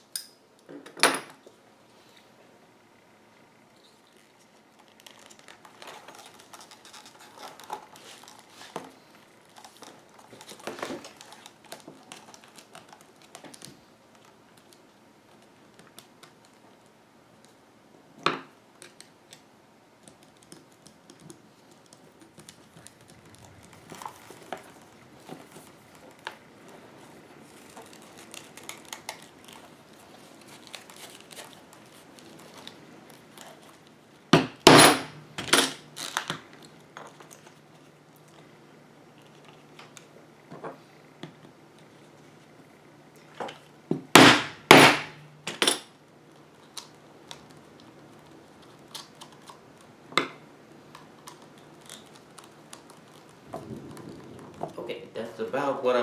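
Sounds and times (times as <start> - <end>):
leather rustling: 21.6 - 34.0.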